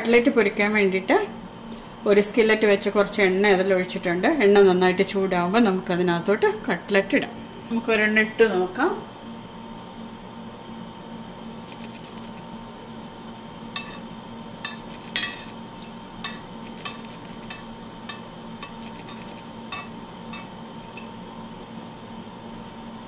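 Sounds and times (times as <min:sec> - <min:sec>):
fish sizzling in hot oil: 0:11.1 - 0:23.0
metal spoon ladling oil: 0:13.6 - 0:21.3.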